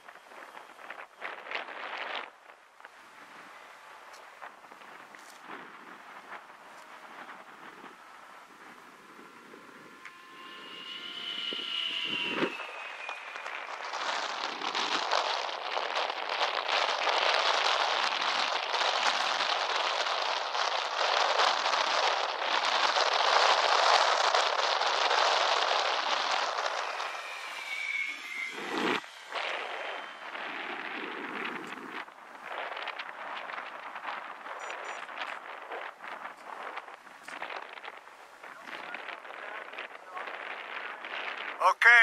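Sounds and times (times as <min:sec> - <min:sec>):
wind on microphone: 0:00.0 - 0:41.8
model airplane motor whining: 0:02.9 - 0:32.0.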